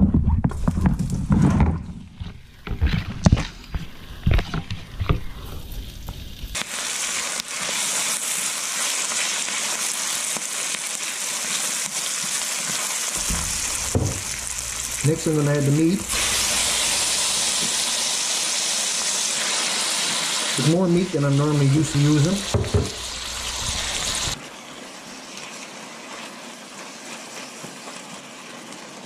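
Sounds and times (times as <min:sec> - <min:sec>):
onions sizzling in oil: 0:04.8 - 0:29.0
utensil knocking against pan: 0:13.2 - 0:14.9, 0:22.4 - 0:23.0.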